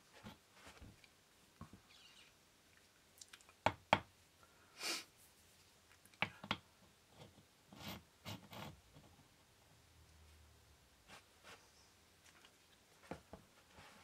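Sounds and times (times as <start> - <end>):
tile sliding and rubbing: 11.0 - 14.0.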